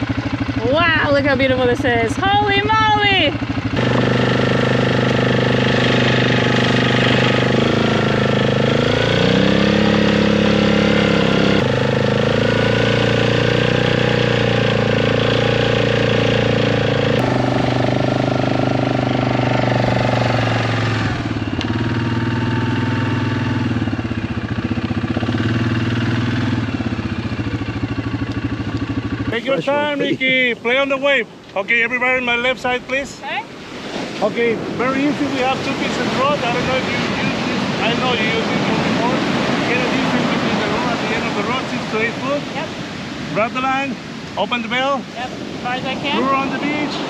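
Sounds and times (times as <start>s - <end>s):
quad bike engine running: 0.0s - 47.0s.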